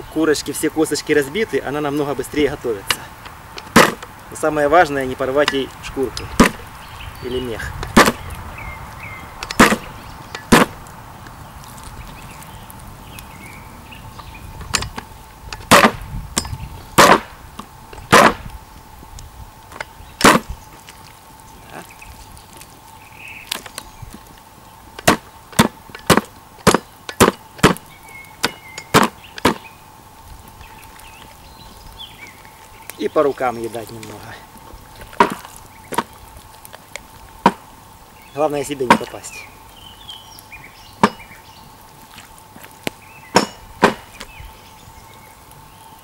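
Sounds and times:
hatchet knocks on chopping board: 0:03.8 - 0:04.0, 0:08.0 - 0:08.2, 0:09.6 - 0:09.8, 0:15.7 - 0:16.0, 0:17.0 - 0:17.3, 0:18.1 - 0:18.4.

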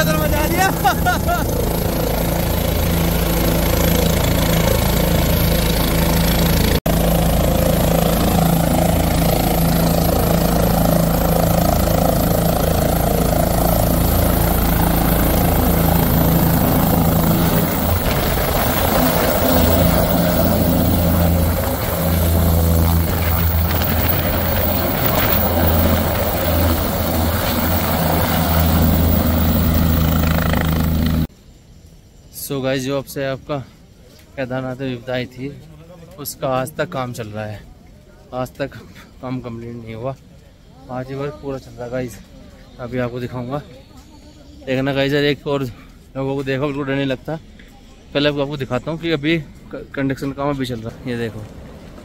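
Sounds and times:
helicopter rotor and turbine engine: 0:00.0 - 0:31.3.

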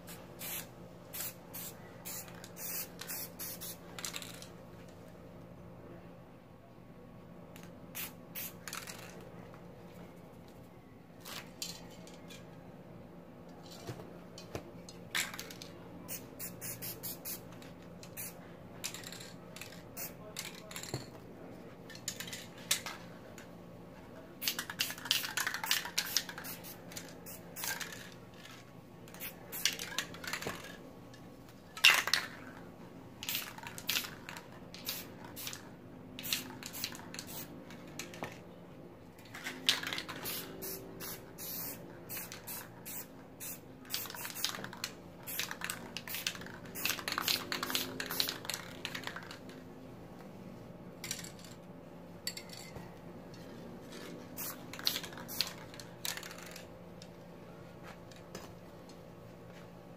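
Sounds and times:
spray can hissing: 0:00.4 - 0:04.4, 0:16.1 - 0:17.5, 0:34.8 - 0:35.6, 0:39.8 - 0:44.6, 0:45.3 - 0:48.8, 0:54.3 - 0:56.6.

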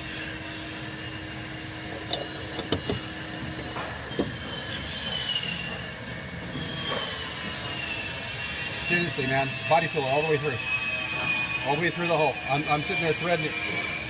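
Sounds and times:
steady background hum: 0:00.0 - 0:14.0
faint high squeals: 0:04.1 - 0:14.0.

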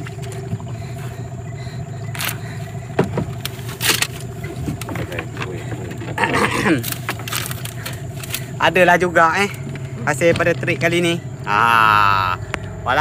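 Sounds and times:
outboard motor running: 0:00.0 - 0:13.0
sharp knocks and clatters: 0:02.9 - 0:08.4.

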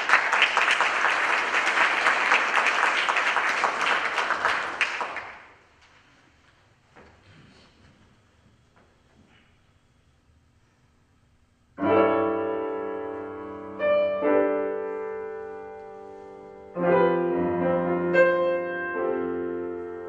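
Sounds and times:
grand piano chords: 0:11.7 - 0:20.0.

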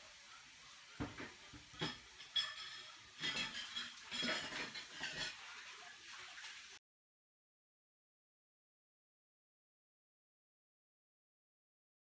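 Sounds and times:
ceramic bowls clinking and scraping: 0:01.0 - 0:05.5.

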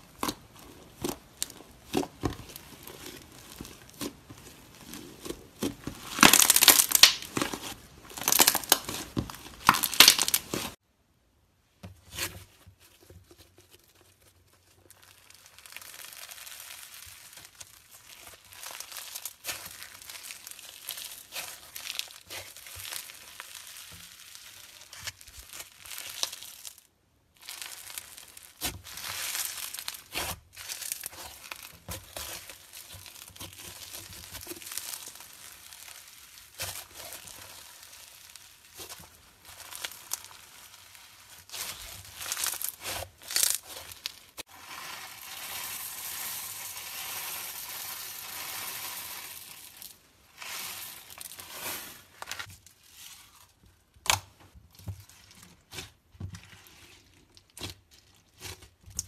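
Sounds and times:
slime crackling under fingers: 0:00.1 - 0:10.8.

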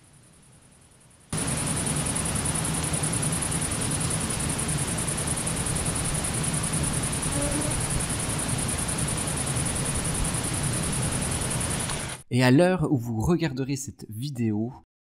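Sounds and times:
grasshoppers chirring: 0:01.4 - 0:11.8.

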